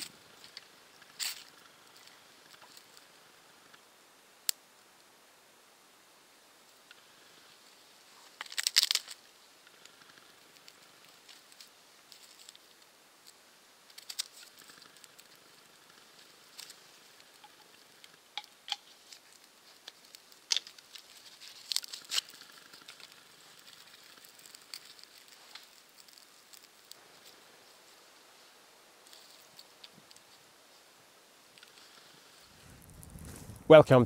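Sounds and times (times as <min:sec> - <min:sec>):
wood fire crackling and popping: 0:08.2 - 0:27.4, 0:31.5 - 0:34.0.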